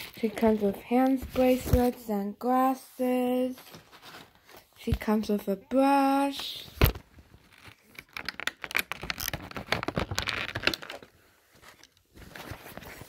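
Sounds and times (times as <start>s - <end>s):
plastic packaging clicking and crinkling: 6.4s - 13.0s.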